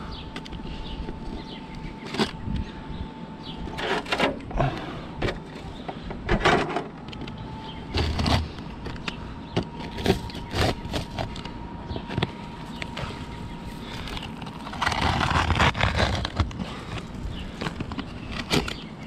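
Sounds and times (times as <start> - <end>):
utility knife slicing roof shingles: 14.6 - 16.6.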